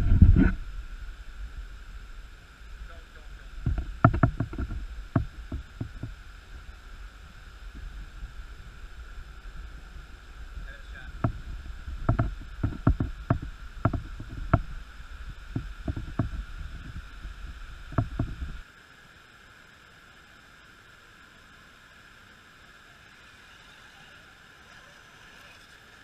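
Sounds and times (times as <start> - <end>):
low rumble: 0.0 - 18.6
faint steady hiss: 0.0 - 26.0
sharp knocks and clicks: 3.6 - 6.2, 11.1 - 14.8, 15.5 - 17.1, 17.9 - 18.6.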